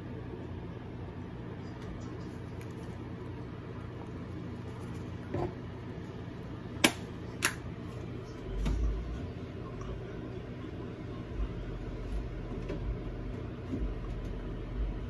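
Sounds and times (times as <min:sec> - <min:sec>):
steady low hum: 0:00.0 - 0:15.0
low rumble: 0:08.2 - 0:15.0.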